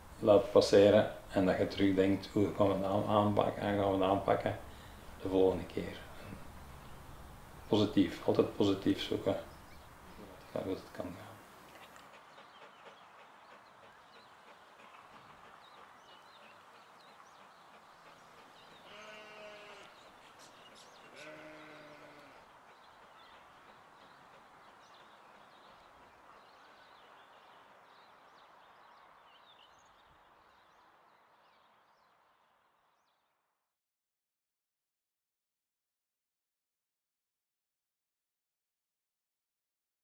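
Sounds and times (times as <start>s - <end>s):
faint outdoor background: 0.0s - 33.8s
sheep bleating: 18.8s - 20.0s, 21.1s - 22.5s.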